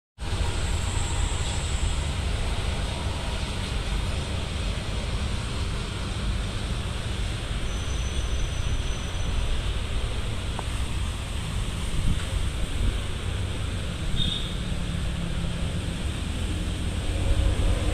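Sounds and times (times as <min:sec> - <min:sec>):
wind buffeting microphone: 0:09.7 - 0:13.7.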